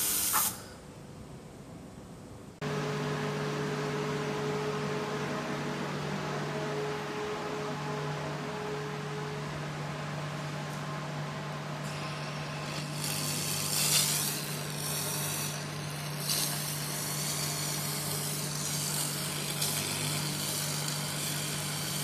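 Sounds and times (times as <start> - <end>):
laser hiss with spark crackle: 0.0 - 0.6, 12.2 - 22.0
steady machine hum: 0.0 - 22.0.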